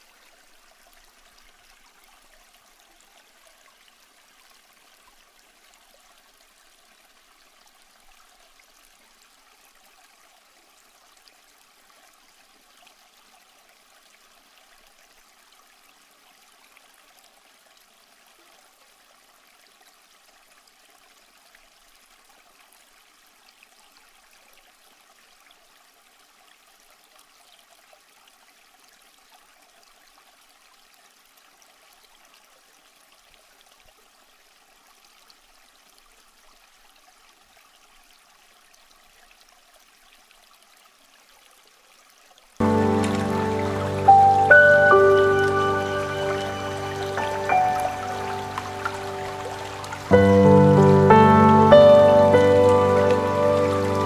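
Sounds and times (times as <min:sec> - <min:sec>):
waterfall rushing: 0:42.6 - 0:54.0.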